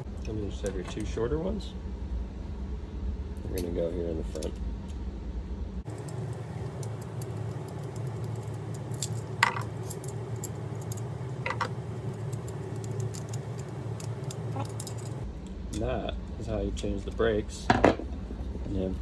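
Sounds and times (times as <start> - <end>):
metallic clicks and clinks: 5.9 - 15.2.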